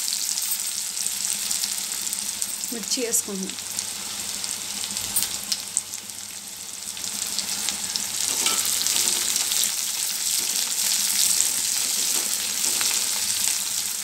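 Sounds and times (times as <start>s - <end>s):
onions sizzling in hot oil: 0.0s - 14.0s
spatula stirring in pan: 8.2s - 13.5s.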